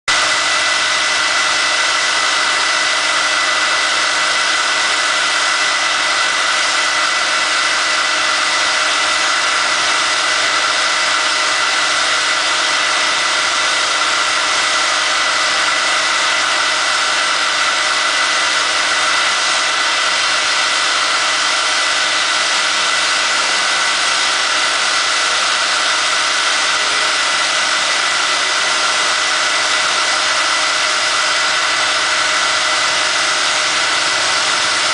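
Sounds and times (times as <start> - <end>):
machine droning: 0.1 - 34.9.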